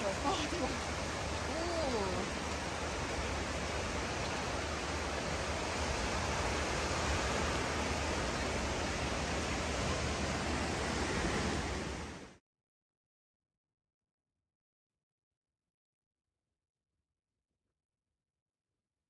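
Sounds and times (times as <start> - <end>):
waterfall pouring: 0.0 - 12.2.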